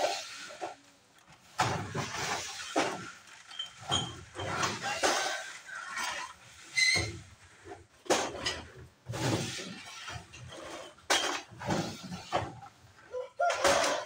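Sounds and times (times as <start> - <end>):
glass bottles clinking in crates: 1.8 - 6.3.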